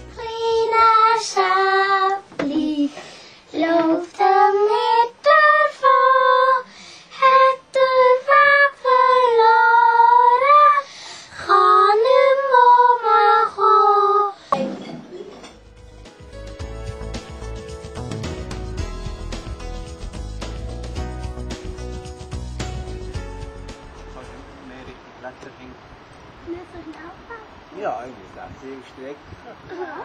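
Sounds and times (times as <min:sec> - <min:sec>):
child singing: 0:00.1 - 0:14.4.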